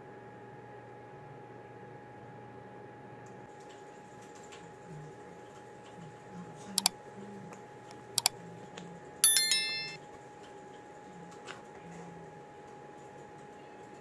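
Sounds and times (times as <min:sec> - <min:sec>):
bright bell chime: 0:09.2 - 0:10.0.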